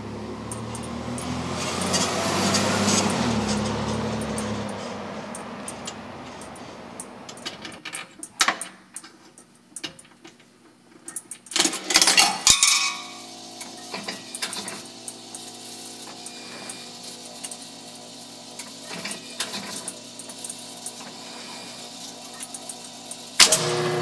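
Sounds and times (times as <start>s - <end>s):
machine humming: 0.0s - 7.6s, 12.4s - 24.0s
coins clattering through mechanism: 11.1s - 23.6s.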